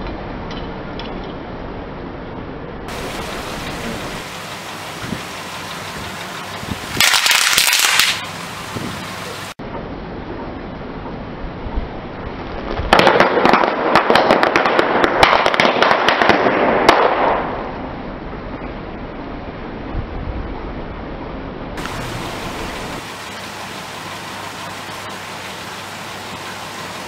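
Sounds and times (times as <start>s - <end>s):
steady background hiss: 0.0s - 12.8s, 17.2s - 27.0s
burst of hissing noise: 2.9s - 9.6s, 21.8s - 27.0s.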